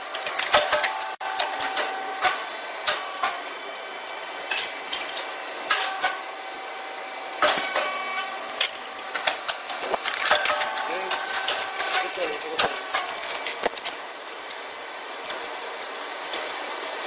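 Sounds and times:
puffed rice machine humming: 0.0s - 9.2s, 9.8s - 17.0s.

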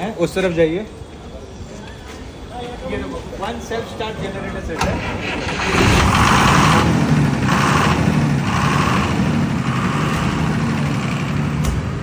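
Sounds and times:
diesel generator running: 4.8s - 12.0s.

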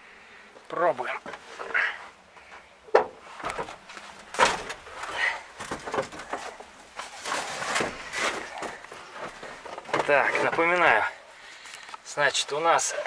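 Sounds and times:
knocks and rustles: 2.4s - 10.9s.

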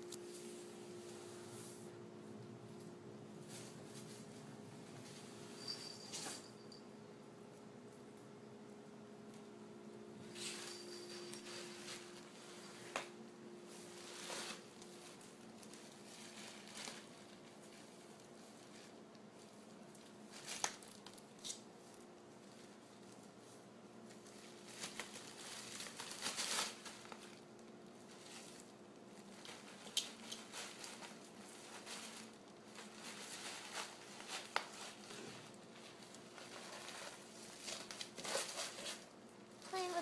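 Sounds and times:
bubble wrap crinkling: 10.4s - 40.0s.

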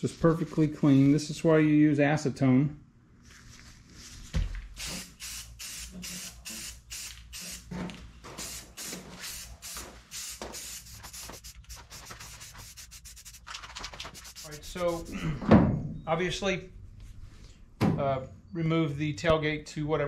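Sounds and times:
spray paint can hissing: 4.8s - 7.7s, 8.3s - 13.5s, 14.1s - 15.1s.

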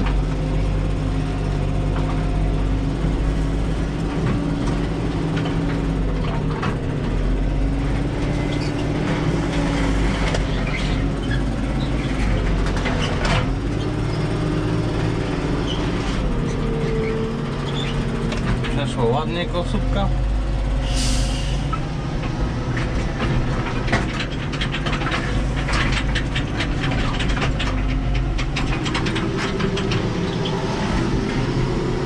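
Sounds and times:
tractor diesel engine running: 0.0s - 32.0s
sharp knocks and rattles: 3.0s - 14.6s, 17.6s - 19.7s, 21.7s - 32.0s.

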